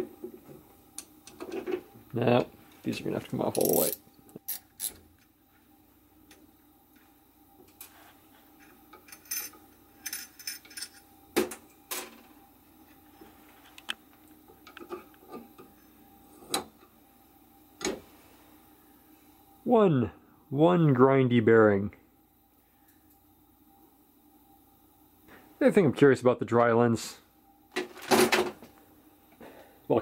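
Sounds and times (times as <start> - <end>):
metal bearings clicking and rattling: 3.5 - 5.0.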